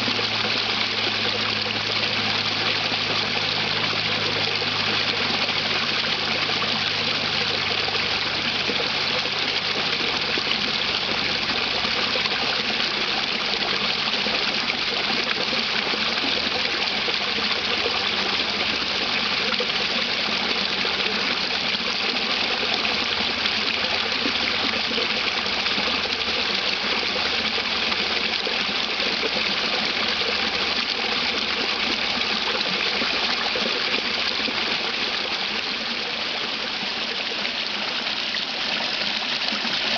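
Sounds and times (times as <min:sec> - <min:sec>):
small waterfall pouring: 0:00.0 - 0:39.9.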